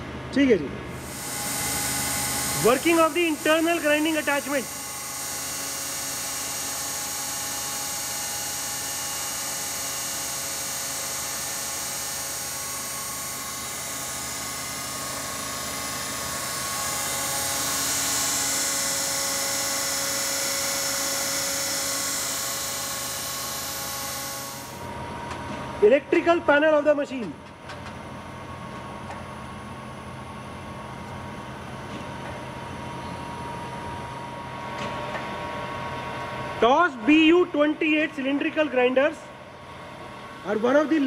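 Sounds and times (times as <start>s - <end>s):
grinder spindle high whine: 1.0s - 26.0s.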